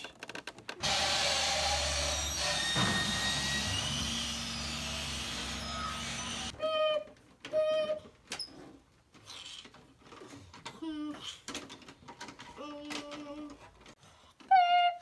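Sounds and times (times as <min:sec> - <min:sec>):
garbage truck compactor hum and hiss: 0:00.8 - 0:06.5.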